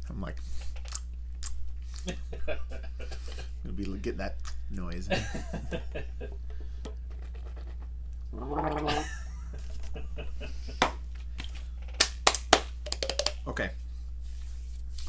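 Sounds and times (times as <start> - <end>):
steady low hum: 0.0 - 15.0
throaty vocal sound: 8.3 - 9.2.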